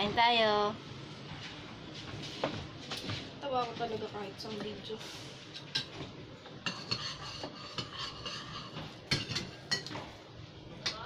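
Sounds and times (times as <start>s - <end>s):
cutlery clinking on dishes: 6.6s - 10.1s.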